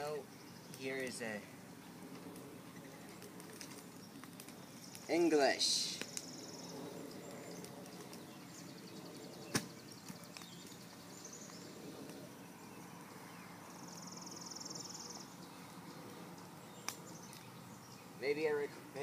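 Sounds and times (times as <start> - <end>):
sticks and paper burning: 0.0 - 13.1, 15.6 - 19.0
fire popping: 0.0 - 13.3, 14.8 - 19.0.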